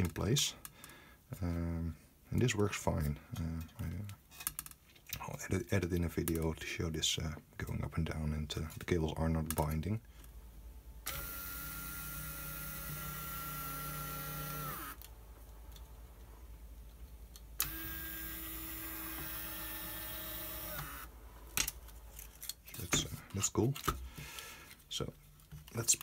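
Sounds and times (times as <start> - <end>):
electric motor whining: 11.1 - 15.0, 17.6 - 21.1.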